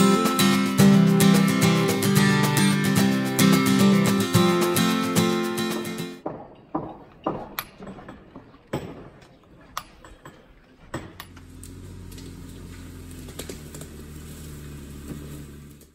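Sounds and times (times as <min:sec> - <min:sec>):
sharp knocks: 0:06.2 - 0:11.4
car engine running: 0:11.2 - 0:15.9.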